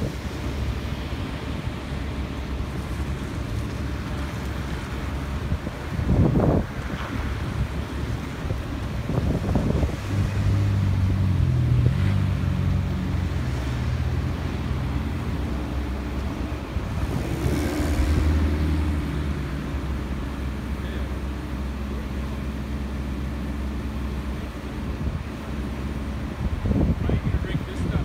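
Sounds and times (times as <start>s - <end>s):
crane engine running: 0.0s - 28.0s.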